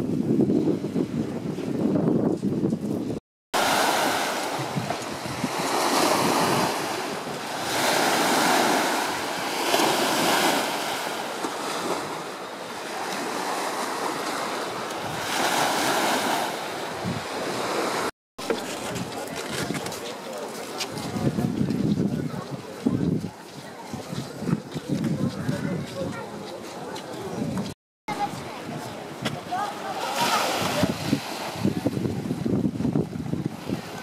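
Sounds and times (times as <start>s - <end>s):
small waves breaking on sand: 3.6s - 18.1s, 28.1s - 34.0s.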